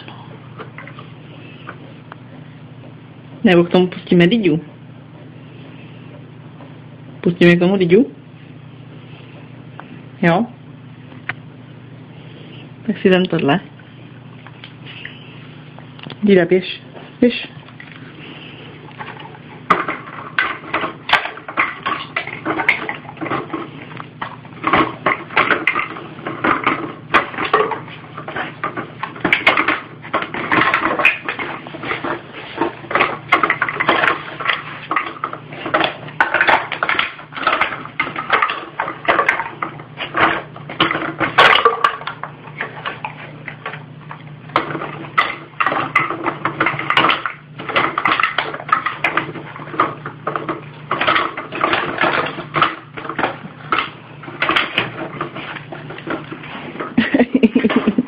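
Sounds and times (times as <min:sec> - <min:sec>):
plastic bottles clattering: 0:18.9 - 0:43.8, 0:44.5 - 0:58.0.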